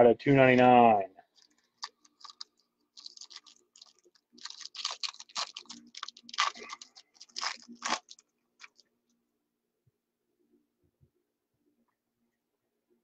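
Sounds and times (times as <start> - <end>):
crackly clicking and crinkling: 1.2 - 9.2.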